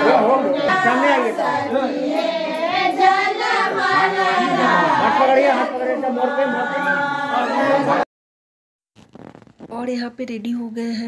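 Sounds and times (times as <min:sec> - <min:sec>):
high-pitched voices singing: 0:00.0 - 0:08.0.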